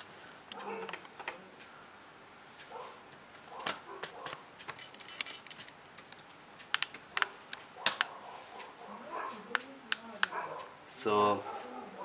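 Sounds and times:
laptop keyboard typing: 3.1 - 8.1.

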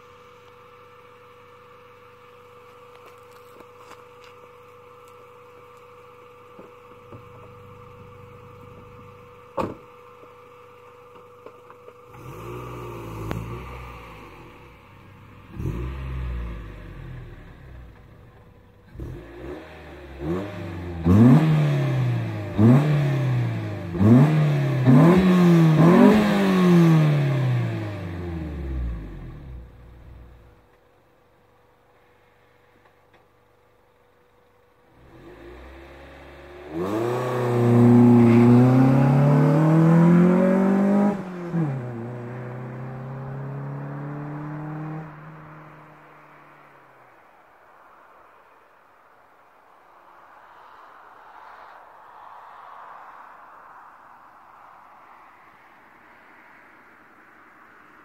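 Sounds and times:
car engine revving: 5.0 - 30.6, 34.8 - 46.7.

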